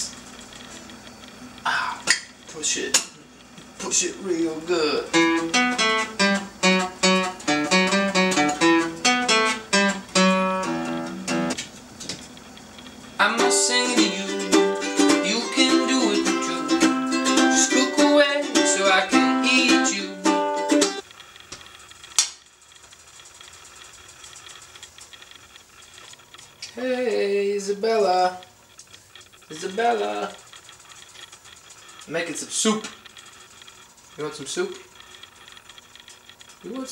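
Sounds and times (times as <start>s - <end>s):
acoustic guitar notes: 5.0s - 11.6s, 13.2s - 21.0s.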